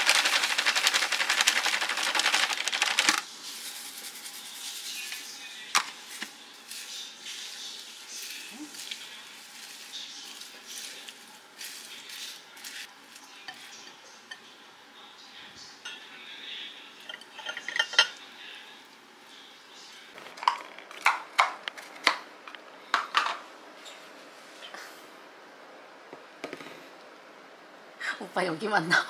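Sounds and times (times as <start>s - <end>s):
food tossed in glass bowl: 0.0s - 5.0s
flakes shaken into glass bowl: 0.0s - 5.2s.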